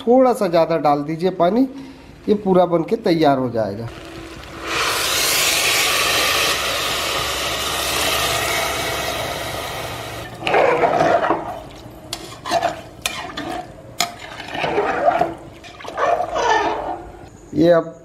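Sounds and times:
water pouring into metal pot: 0:03.9 - 0:10.4
ladle stirring and clinking pot: 0:10.8 - 0:16.9.

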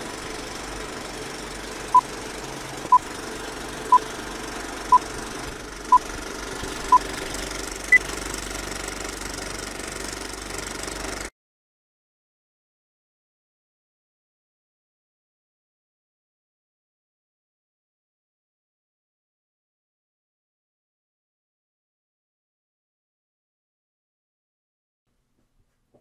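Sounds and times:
film projector clattering: 0:00.0 - 0:11.3.

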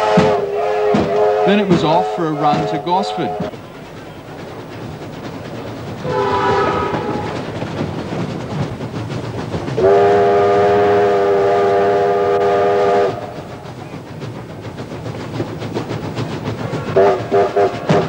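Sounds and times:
steam locomotive whistle: 0:00.0 - 0:03.5, 0:06.0 - 0:07.4, 0:09.8 - 0:13.4, 0:17.0 - 0:18.0
moving train running noise: 0:00.0 - 0:18.0.

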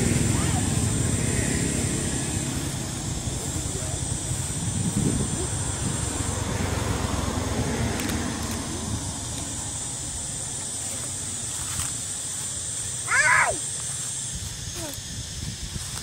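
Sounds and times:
low rumble: 0:00.0 - 0:10.6
hiss: 0:00.0 - 0:16.0.

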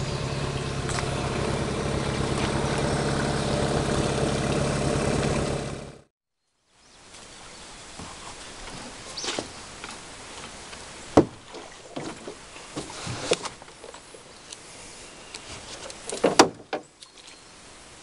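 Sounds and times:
outboard motor idling: 0:00.0 - 0:06.1.

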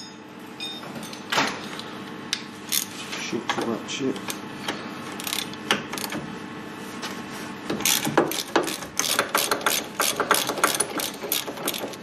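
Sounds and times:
socket ratchet clicking: 0:05.2 - 0:06.2, 0:07.8 - 0:12.0.

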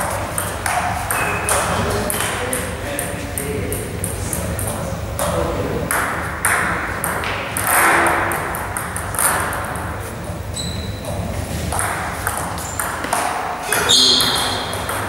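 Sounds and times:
table tennis ball clicking: 0:11.7 - 0:13.4.

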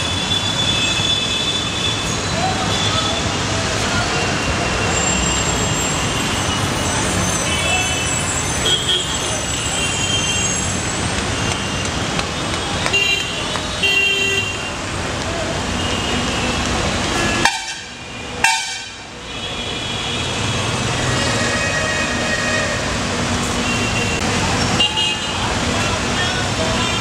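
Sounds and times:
road traffic: 0:00.0 - 0:27.0
people's voices: 0:02.2 - 0:05.3, 0:24.2 - 0:27.0
car horns honking: 0:17.1 - 0:22.1.

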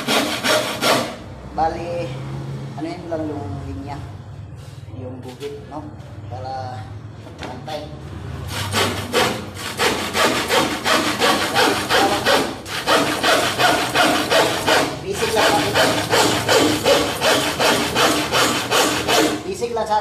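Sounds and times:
handsaw cutting wood: 0:00.0 - 0:01.2, 0:08.5 - 0:19.5.

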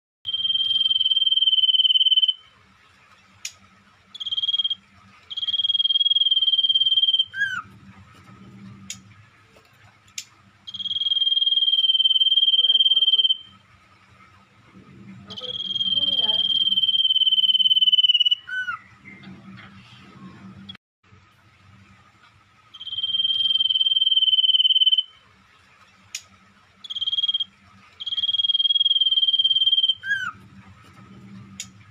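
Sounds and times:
low hum: 0:00.3 - 0:31.9
songbird trilling: 0:10.7 - 0:13.5, 0:15.3 - 0:18.8, 0:22.8 - 0:25.1, 0:26.8 - 0:30.3.

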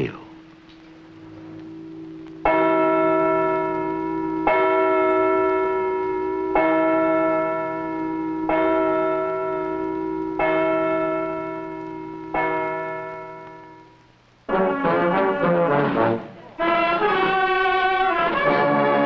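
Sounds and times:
church bell tolling: 0:01.2 - 0:14.0.

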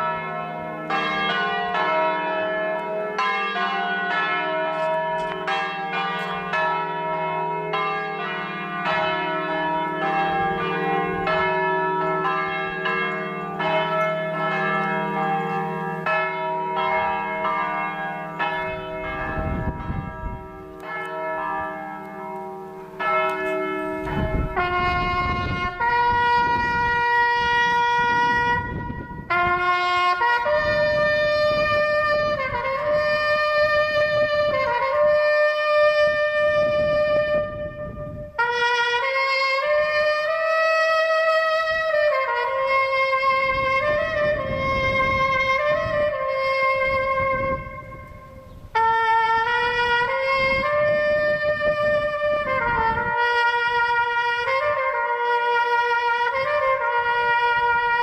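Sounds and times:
church bells ringing: 0:00.0 - 0:58.0
wind rumbling on microphone: 0:16.0 - 0:21.9, 0:23.0 - 0:58.0
solo trumpet long notes: 0:23.4 - 0:58.0.

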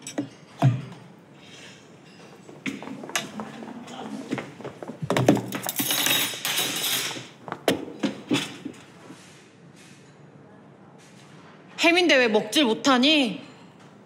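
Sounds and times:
metal trays and spoons clattering: 0:00.0 - 0:04.0, 0:05.0 - 0:07.4.

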